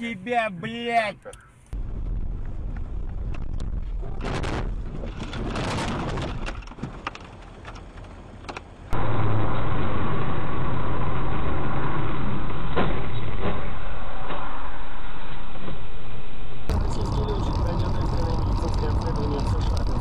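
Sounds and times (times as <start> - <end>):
car engine and road noise: 0.0 - 20.0
muffled engine drone: 16.6 - 20.0.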